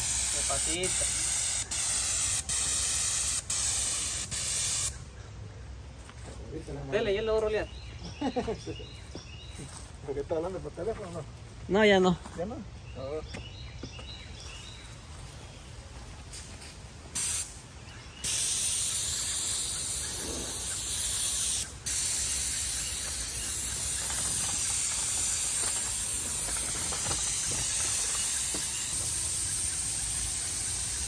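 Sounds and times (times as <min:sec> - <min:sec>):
paint spray gun hissing: 0:00.0 - 0:05.0, 0:17.2 - 0:17.6, 0:18.2 - 0:31.0.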